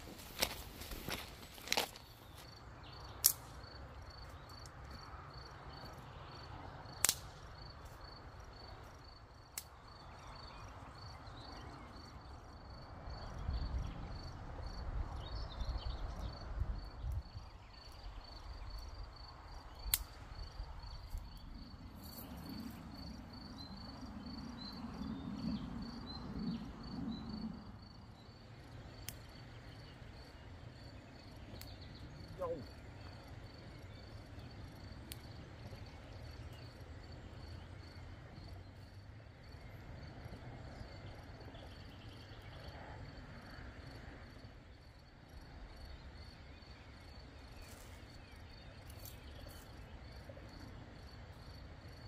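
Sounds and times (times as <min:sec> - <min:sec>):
insect chirping: 0:00.0 - 0:52.0.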